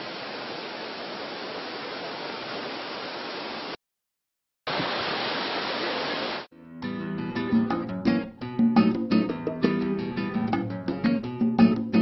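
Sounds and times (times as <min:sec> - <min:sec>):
waterfall roaring: 0:04.7 - 0:06.5.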